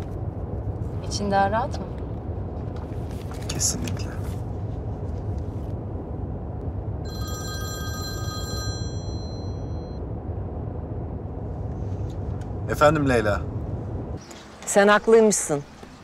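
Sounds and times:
electronic phone ringtone: 7.1 - 10.0.

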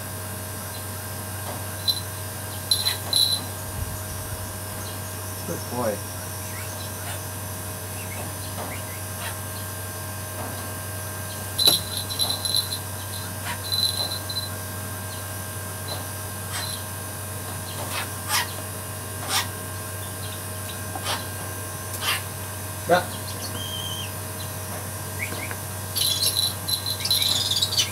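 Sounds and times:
steady low hum: 0.0 - 27.9
metal chain clinking: 2.7 - 3.6, 11.6 - 14.6, 26.0 - 27.6.

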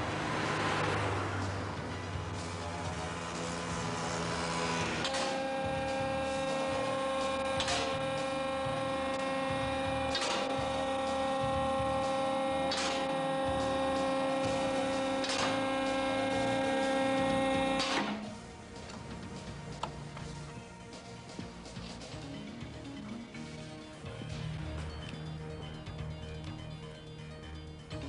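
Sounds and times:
electric motor whining: 2.3 - 18.4.

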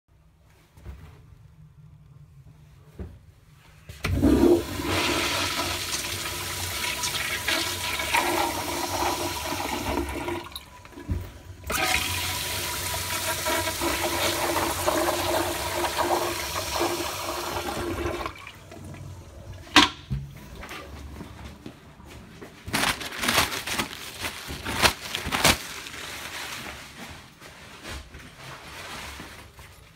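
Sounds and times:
toilet flushing: 4.0 - 21.2.

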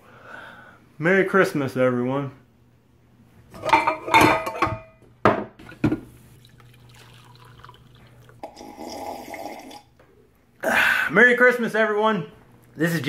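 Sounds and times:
pots and dishes clattering: 3.6 - 6.0
coffee pouring into mug: 5.7 - 10.0.

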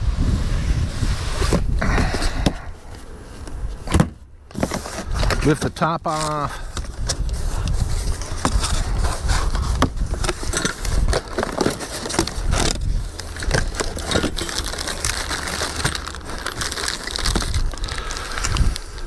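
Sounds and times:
cardboard rustling and scraping: 0.2 - 19.0
plastic bag handled: 4.5 - 19.0.

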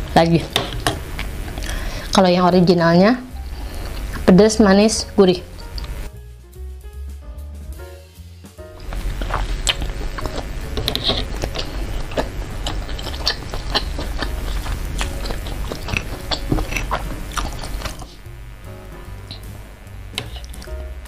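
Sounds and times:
wet chewing and mouth smacks: 8.8 - 18.1.

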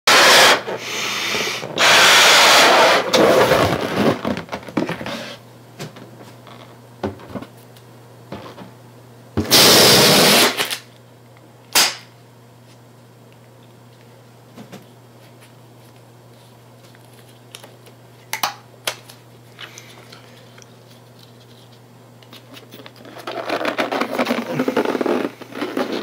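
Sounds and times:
rubber balloon rubbing: 0.1 - 5.4, 23.0 - 26.0
balloon popping: 23.6 - 26.0
balloon blown up by mouth: 23.9 - 26.0.

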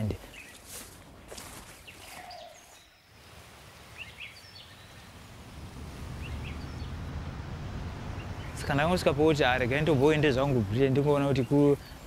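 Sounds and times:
bird chirps: 1.8 - 3.2, 3.9 - 5.2, 6.1 - 7.1
low rumble: 5.3 - 10.5.

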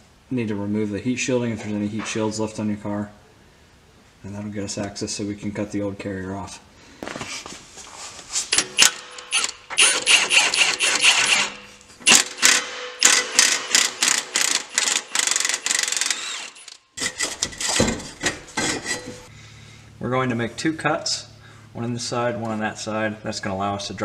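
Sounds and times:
impact wrench rattling: 8.5 - 19.3.

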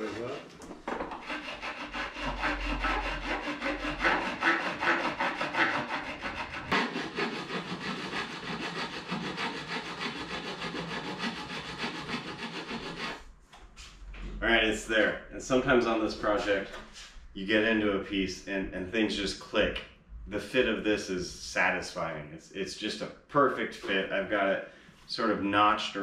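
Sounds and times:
hand file filing metal: 0.0 - 0.5, 1.1 - 13.2.

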